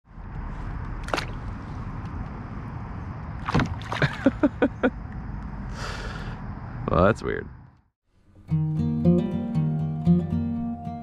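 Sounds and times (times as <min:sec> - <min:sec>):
fish splashing at water surface: 0:03.4 - 0:04.4.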